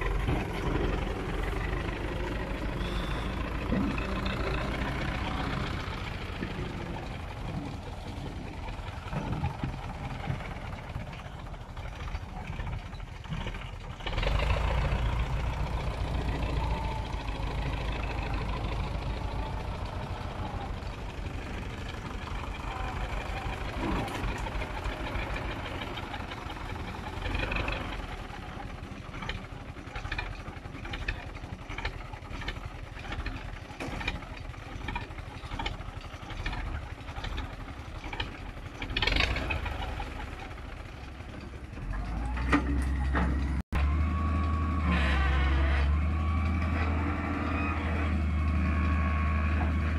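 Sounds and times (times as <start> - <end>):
tractor engine under load: 0.0 - 49.9
metal clanks and knocks: 29.1 - 39.3.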